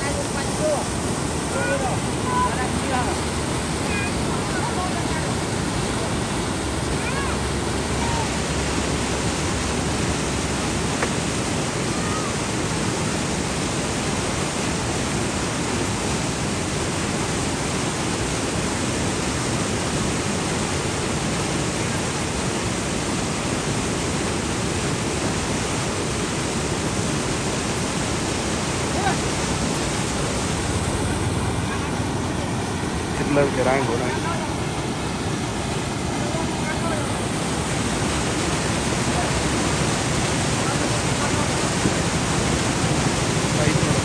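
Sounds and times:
whitewater rushing: 0.0s - 44.0s.

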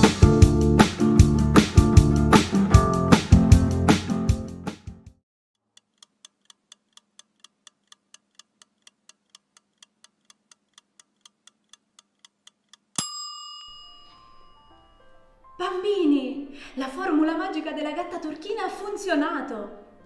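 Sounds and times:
clock ticking: 5.7s - 13.0s
bell-like chime: 13.0s - 15.4s.

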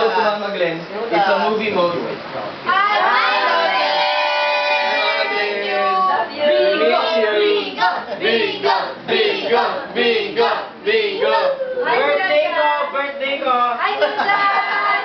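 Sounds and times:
overlapping shouts and calls: 2.7s - 12.5s, 14.0s - 15.0s
family calling out greeting: 2.7s - 13.1s, 14.0s - 15.0s.

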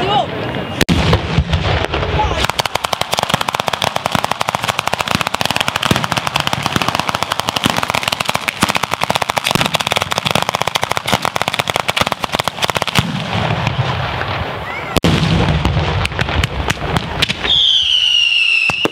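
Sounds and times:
firecracker bangs in rapid chain: 0.8s - 14.2s.

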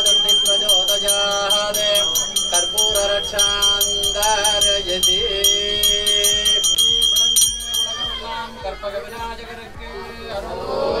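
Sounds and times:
hand bell rung rapidly: 0.0s - 8.7s
man chanting: 0.0s - 11.0s.

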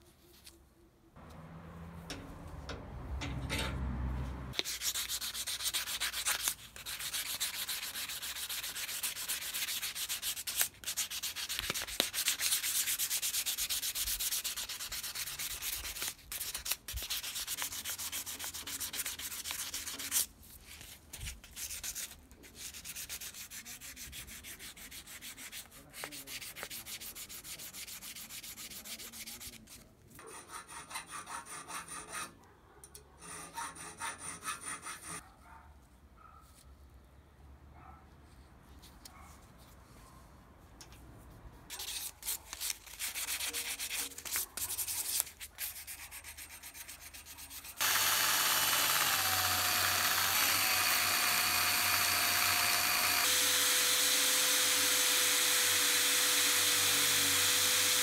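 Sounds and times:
sandpaper rubbing: 4.5s - 32.3s, 41.7s - 48.6s.

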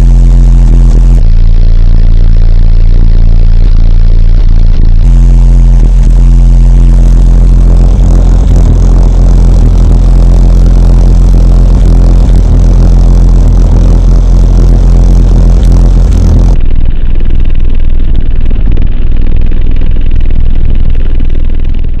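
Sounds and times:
subwoofer playing bass-heavy beat: 0.0s - 18.9s.

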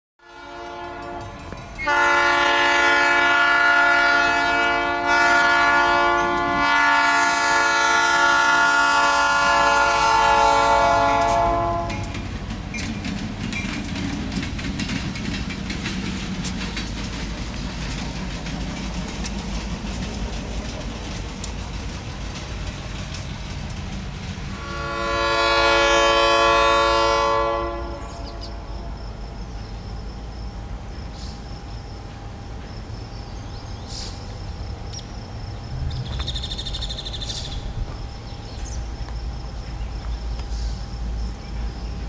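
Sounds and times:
locomotive air horn: 0.2s - 12.2s, 24.5s - 28.9s
locomotive engine rumble: 0.3s - 42.0s
wheels clicking over rail joints: 0.4s - 2.6s, 5.8s - 26.0s, 27.9s - 42.0s.

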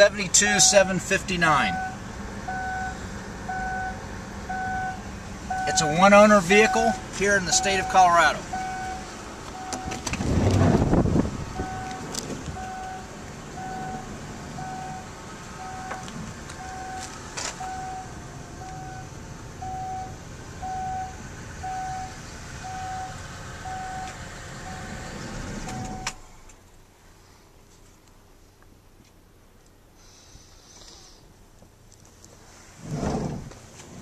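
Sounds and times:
dashboard warning chime beeping: 0.0s - 10.0s, 11.6s - 25.0s, 25.6s - 26.2s.

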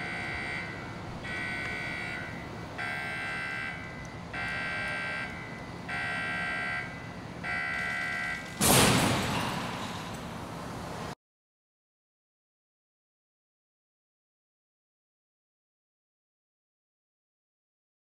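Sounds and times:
warning buzzer beeping: 0.0s - 8.6s
loud bang: 8.4s - 10.2s.

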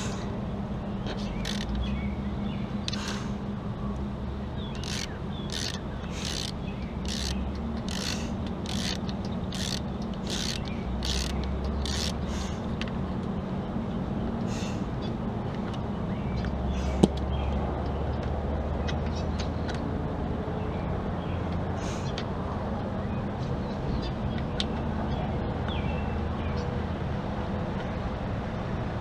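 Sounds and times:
steady low hum: 0.0s - 24.6s
ratchet wrench clicking: 1.4s - 1.8s, 4.8s - 12.2s.

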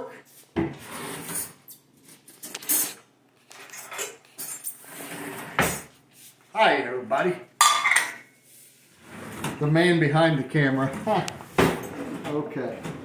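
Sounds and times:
silverware clattering: 7.6s - 8.3s.

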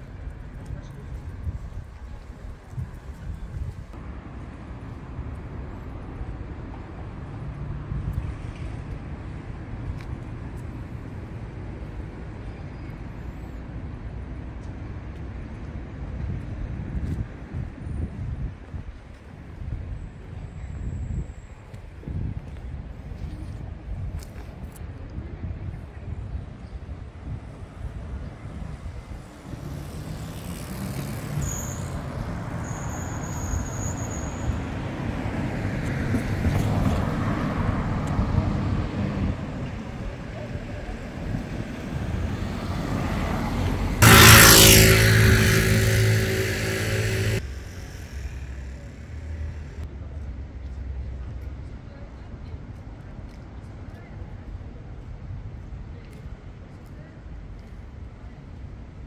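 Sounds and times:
steady low street rumble: 0.0s - 59.0s
car driving past: 29.2s - 39.5s, 42.2s - 49.8s
thin high whine: 44.0s - 49.8s.

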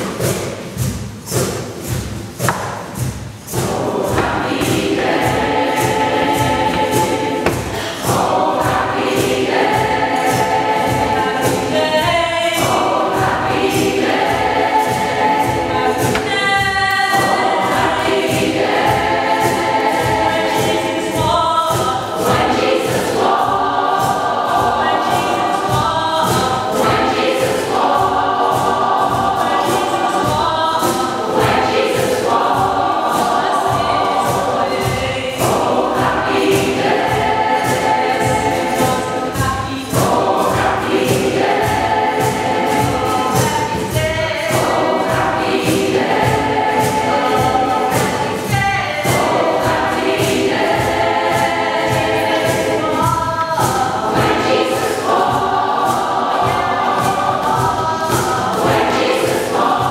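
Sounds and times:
choir singing in harmony: 0.0s - 59.9s
singers breathing: 7.6s - 8.1s.

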